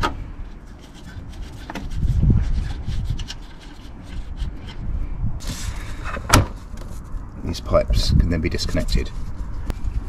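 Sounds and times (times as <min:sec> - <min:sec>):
gloved hand rubbing metal fitting: 0:00.0 - 0:07.3.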